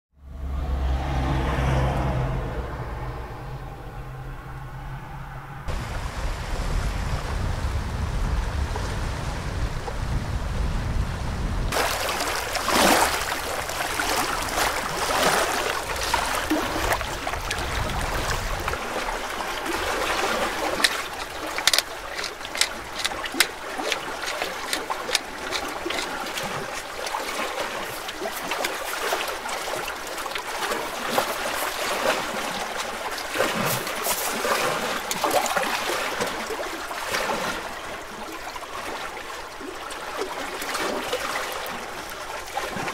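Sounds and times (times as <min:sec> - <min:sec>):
wind rumble on microphone: 0:00.2 - 0:26.8
small waves lapping on stony shore: 0:11.7 - 0:42.9
sharp clicks and taps: 0:21.6 - 0:26.1.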